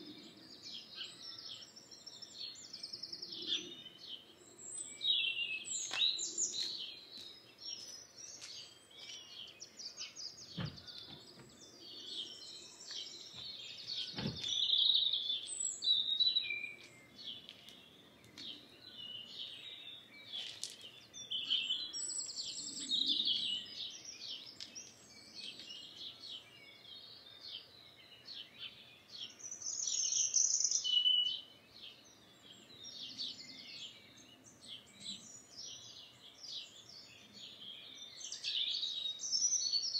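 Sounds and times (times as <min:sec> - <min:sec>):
songbirds singing: 0:00.0 - 0:39.9
brief knocks: 0:10.5 - 0:11.5.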